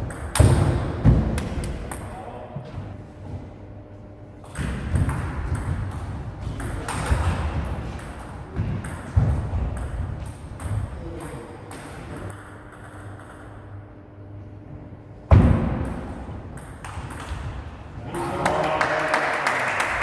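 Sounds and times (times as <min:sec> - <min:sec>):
table tennis ball hitting bats and table: 0:00.0 - 0:02.1, 0:04.4 - 0:13.6, 0:15.4 - 0:17.6.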